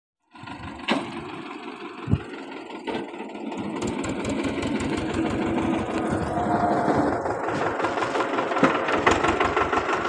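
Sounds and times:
tractor diesel engine pulsing: 0:00.3 - 0:10.0.

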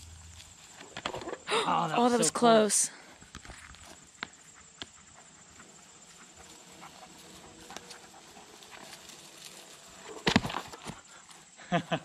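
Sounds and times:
faint ticks and rustle: 0:00.0 - 0:12.0
board dropping with thump: 0:10.2 - 0:11.0.

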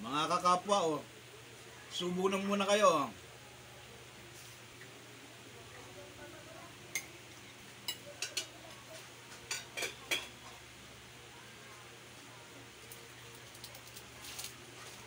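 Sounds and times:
faint steady hum: 0:00.0 - 0:15.0
spoon clinking against a plate: 0:07.8 - 0:08.6, 0:09.4 - 0:10.4.

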